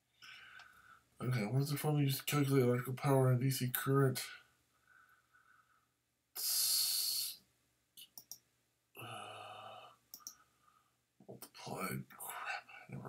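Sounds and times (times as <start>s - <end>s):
computer mouse clicks: 8.0s - 8.4s, 10.1s - 10.4s
man sighing: 9.0s - 10.0s.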